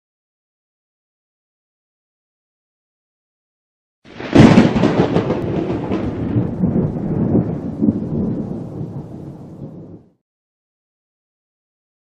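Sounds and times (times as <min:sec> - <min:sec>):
deep thunder-like rumble: 0:04.1 - 0:10.2.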